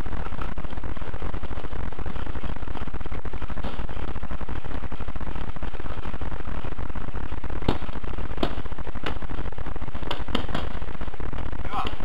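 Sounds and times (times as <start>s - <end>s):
electrical buzz: 0.0s - 12.0s
paintball marker shots: 7.6s - 9.3s, 10.1s - 10.8s.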